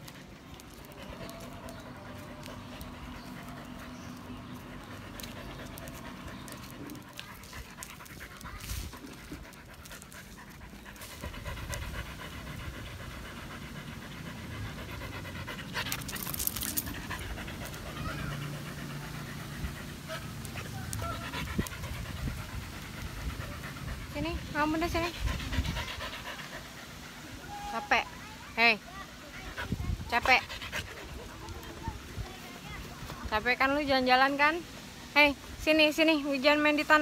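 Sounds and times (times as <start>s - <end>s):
dog panting: 0.0s - 34.9s.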